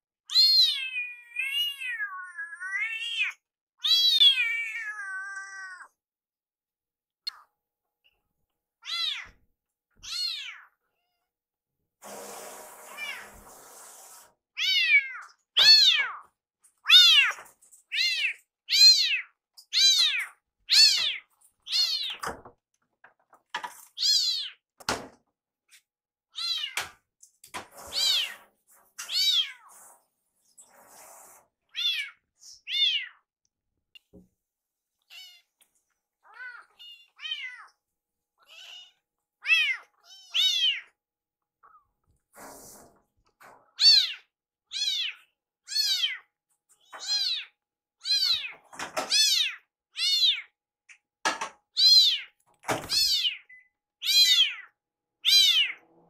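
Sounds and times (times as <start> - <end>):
kitten meowing: 0.3 - 5.9, 8.8 - 9.4, 10.0 - 11.3, 14.6 - 22.2, 38.4 - 40.9, 43.8 - 46.3, 46.9 - 50.5, 51.8 - 55.8.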